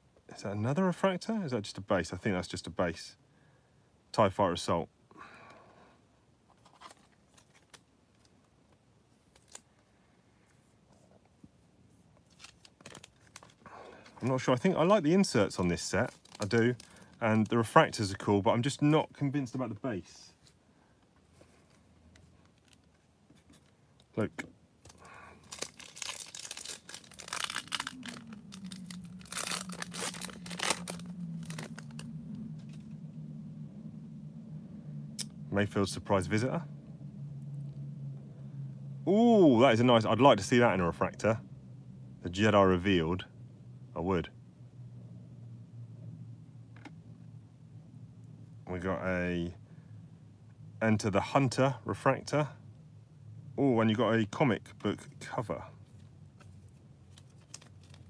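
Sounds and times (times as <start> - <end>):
trading cards rustling: 6.5 - 8.3, 12.0 - 14.2, 15.9 - 17.5, 24.8 - 32.9, 55.9 - 58.0
foil wrapper crinkling: 12.2 - 13.8, 15.6 - 17.7, 24.8 - 32.9, 56.4 - 58.0.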